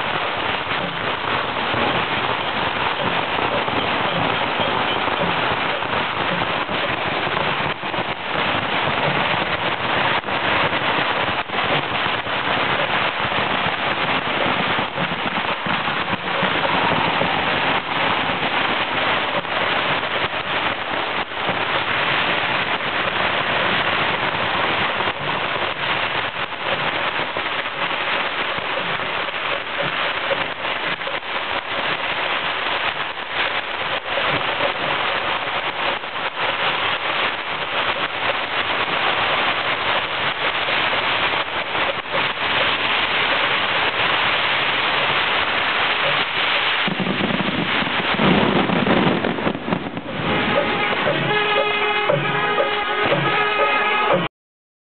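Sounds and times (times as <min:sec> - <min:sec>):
firecrackers crackling and popping: 0:00.0 - 0:54.3
sharp firecracker bangs: 0:46.4 - 0:54.3.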